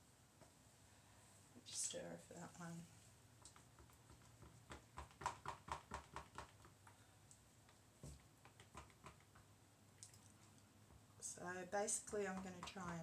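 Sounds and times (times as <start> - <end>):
stirrer knocking plastic jug: 3.5 - 6.8, 12.1 - 13.0.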